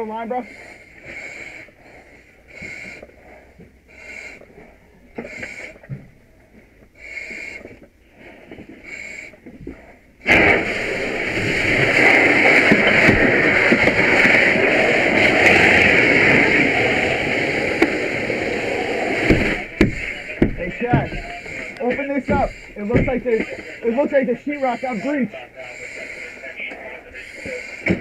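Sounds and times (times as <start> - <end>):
breathing through mask regulator: 0.3 - 6.0, 6.9 - 28.0
fire hose water rushing: 10.2 - 25.2.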